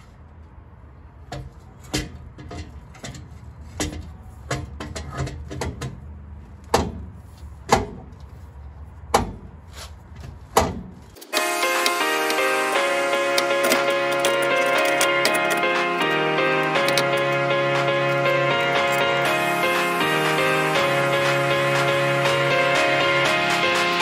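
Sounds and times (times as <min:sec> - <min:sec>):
metal exhaust header clanking: 0:01.2 - 0:06.1, 0:13.4 - 0:19.2
music: 0:11.2 - 0:24.0.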